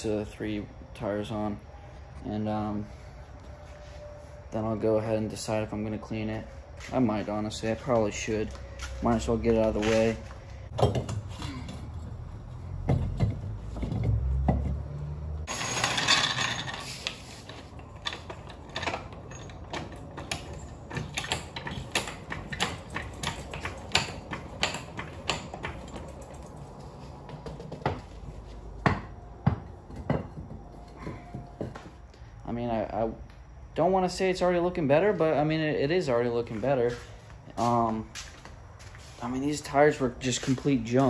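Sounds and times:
metallic clicks and knocks: 17.5s - 28.0s.

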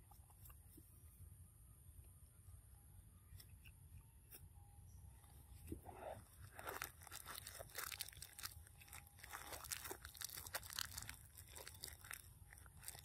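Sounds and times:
monkeys crunching food: 5.8s - 13.0s.

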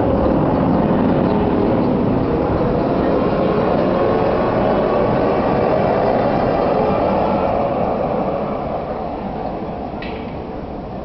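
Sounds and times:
tram wheels rumbling on rails: 0.0s - 11.0s.

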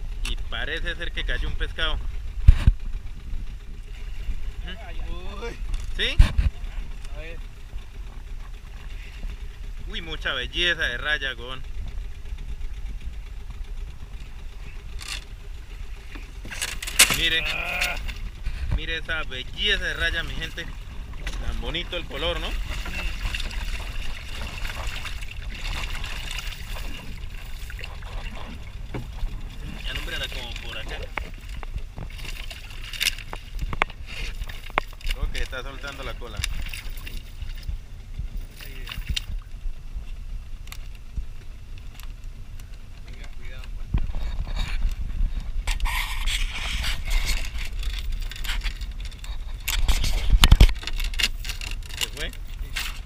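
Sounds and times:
low rumble: 0.0s - 53.0s
wet net rustling and scraping: 20.2s - 35.4s, 44.0s - 53.0s
knocks on boat: 20.6s - 32.4s.

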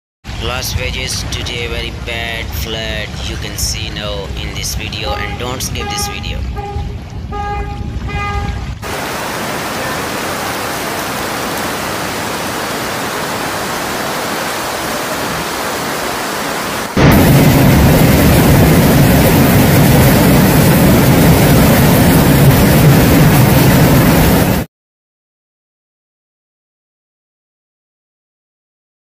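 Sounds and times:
floodwater rushing: 0.4s - 7.2s, 8.0s - 24.6s.

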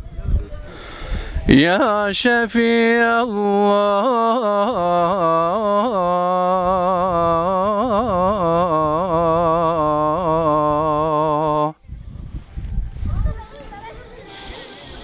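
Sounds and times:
man chanting: 1.5s - 11.8s.

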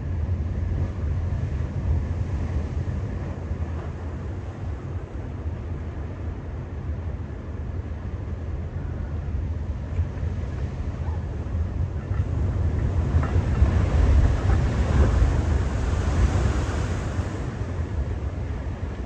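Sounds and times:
wind rumble on microphone: 0.0s - 19.0s
ocean wave breaking: 10.6s - 19.0s.

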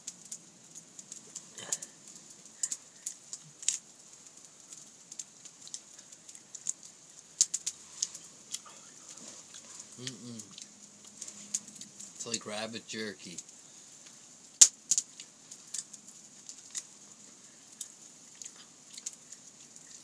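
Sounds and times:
wood fire crackling and popping: 0.0s - 20.0s
person chewing meat: 7.6s - 12.0s, 17.8s - 20.0s.

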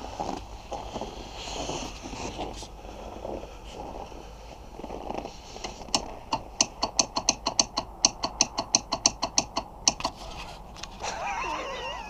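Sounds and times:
ratchet wrench clicking: 6.0s - 10.1s.

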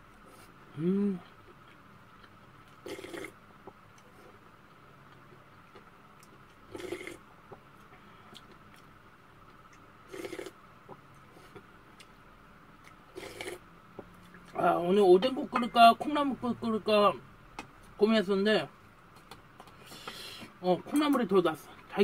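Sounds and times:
faint steady hum: 0.0s - 22.0s
quiet chewing: 1.2s - 12.2s.

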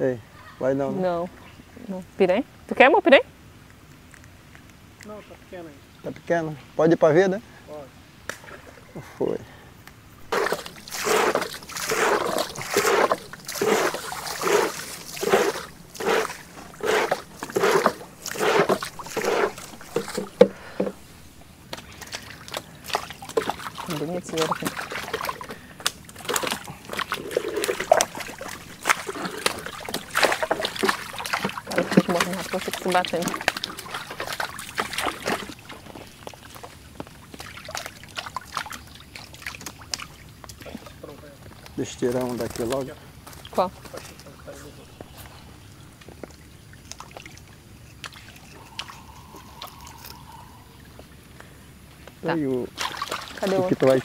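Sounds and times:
paddle splashing in water: 10.3s - 21.1s, 21.7s - 41.0s, 52.2s - 54.0s.

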